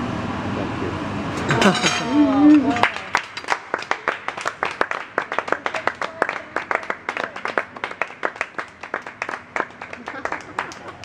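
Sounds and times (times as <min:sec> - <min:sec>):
people clapping: 0:02.6 - 0:11.0.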